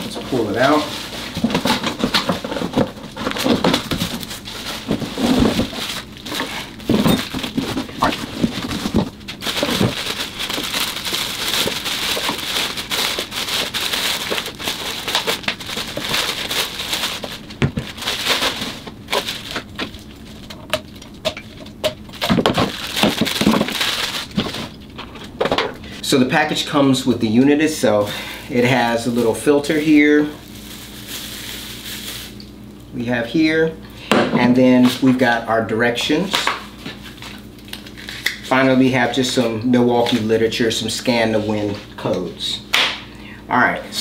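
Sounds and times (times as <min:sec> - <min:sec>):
plastic wrapping crinkling: 0:00.0 - 0:26.0, 0:28.0 - 0:32.4.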